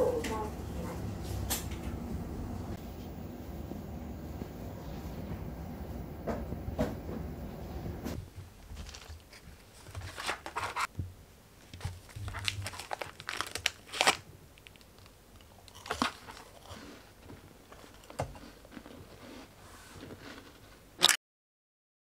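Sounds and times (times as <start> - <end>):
cracker crunching: 8.8 - 10.9, 11.7 - 20.8
plastic wrapper crinkling: 8.8 - 10.9, 11.7 - 16.6.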